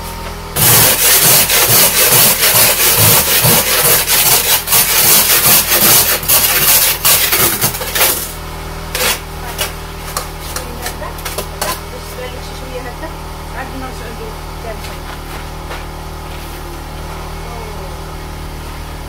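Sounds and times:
ice scraper rasping on window: 0:00.6 - 0:11.8.

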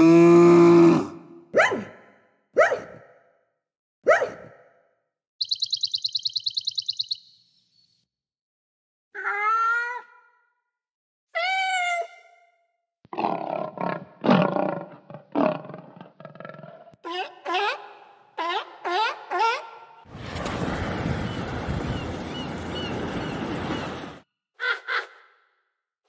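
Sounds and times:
lion roars and grunts: 0:00.0 - 0:01.2, 0:13.1 - 0:17.0
sparrow chirping trill: 0:05.4 - 0:08.0.

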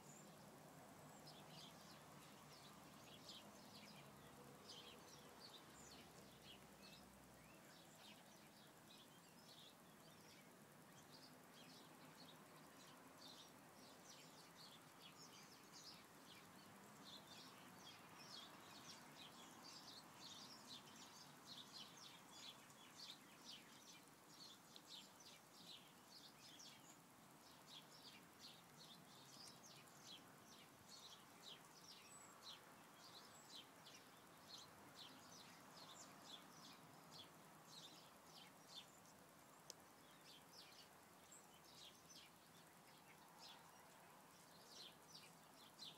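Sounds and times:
faint bird chirps: 0:00.0 - 0:45.9
outdoor hiss: 0:00.0 - 0:45.9.

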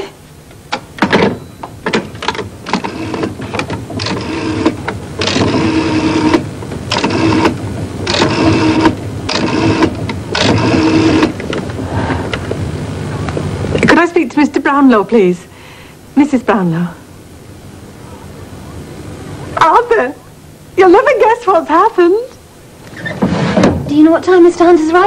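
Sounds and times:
rotary phone dial whirring: 0:02.2 - 0:11.7.

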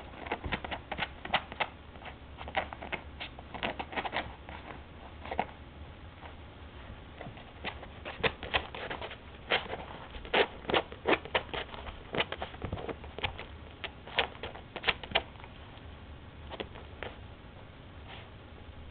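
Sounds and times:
dog claws scratching couch: 0:00.0 - 0:05.6, 0:07.2 - 0:15.5.

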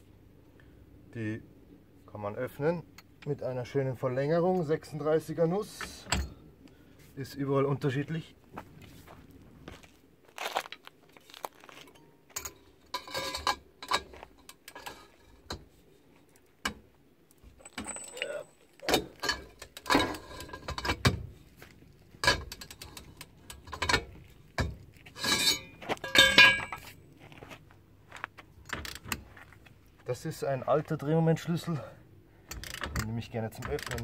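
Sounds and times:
metal tools clinking and clattering: 0:11.9 - 0:15.6, 0:17.5 - 0:21.2, 0:22.2 - 0:26.9.

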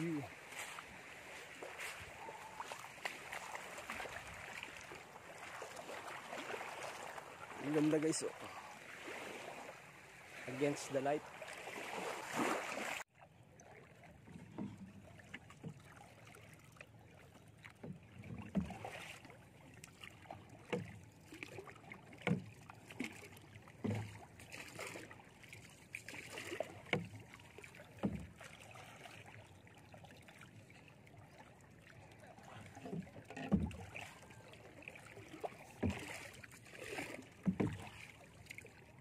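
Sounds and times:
water splashing softly: 0:00.0 - 0:39.0
paddle knocking wooden hull: 0:14.1 - 0:16.3, 0:17.6 - 0:29.2, 0:32.3 - 0:38.9.

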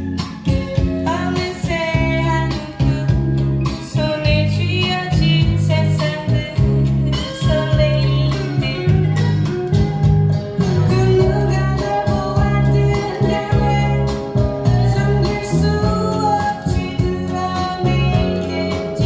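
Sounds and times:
plucked guitar: 0:00.0 - 0:19.0
steady bass line: 0:00.0 - 0:19.0
woman singing blues song: 0:01.0 - 0:09.7, 0:10.7 - 0:19.0.

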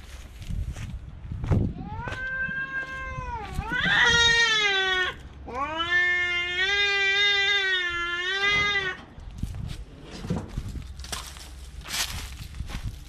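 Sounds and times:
cat yowling: 0:01.8 - 0:09.0.

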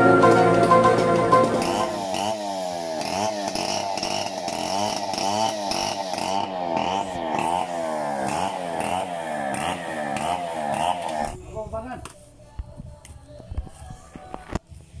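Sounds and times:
chainsaw cutting wood: 0:01.2 - 0:11.4.

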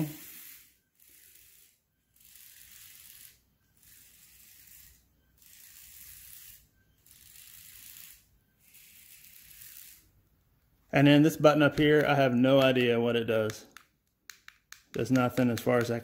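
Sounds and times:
small electric motors whirring: 0:00.0 - 0:10.4.

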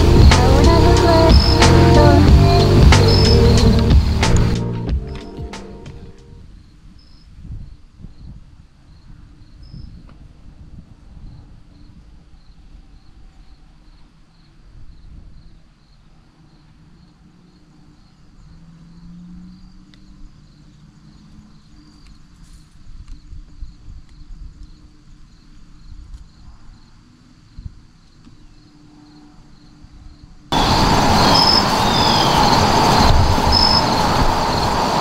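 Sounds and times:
insect chirping: 0:00.0 - 0:04.6, 0:06.5 - 0:10.0, 0:11.2 - 0:35.0
low rumbling noise: 0:00.0 - 0:06.6, 0:30.5 - 0:35.0.

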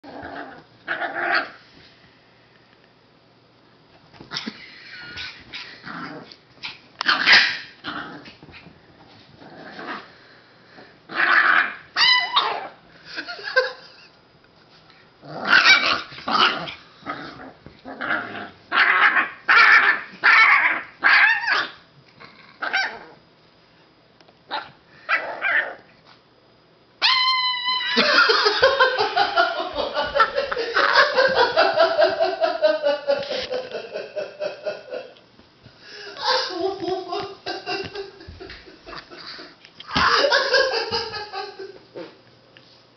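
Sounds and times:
puppy growling and barking: 0:00.0 - 0:01.6, 0:05.2 - 0:08.6, 0:09.4 - 0:10.2, 0:11.1 - 0:12.8, 0:15.2 - 0:23.2, 0:24.5 - 0:25.9
person laughing: 0:04.3 - 0:05.4, 0:27.8 - 0:35.2, 0:35.9 - 0:42.2
puppy shrieking: 0:11.2 - 0:12.8, 0:18.1 - 0:21.8, 0:27.0 - 0:28.0.

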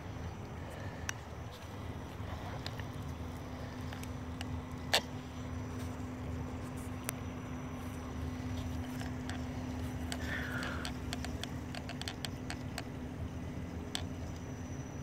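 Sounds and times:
rc truck motor hum: 0:00.0 - 0:15.0
sharp clicks and ticks: 0:08.6 - 0:14.8.

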